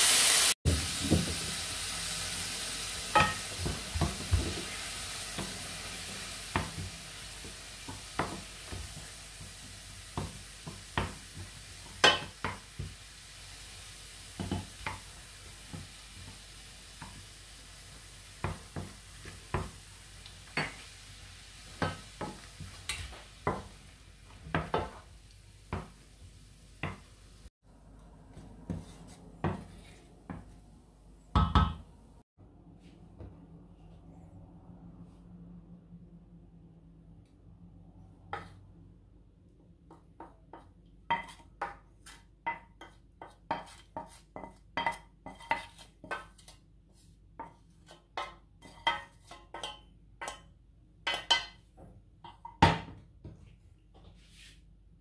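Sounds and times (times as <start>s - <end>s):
sauce sizzling: 0.0s - 27.5s
wooden spoon knocking frying pan: 3.1s - 4.8s, 10.1s - 13.0s, 14.4s - 16.4s, 21.8s - 23.8s, 24.4s - 25.0s, 31.3s - 31.8s, 39.9s - 46.5s, 47.4s - 51.6s.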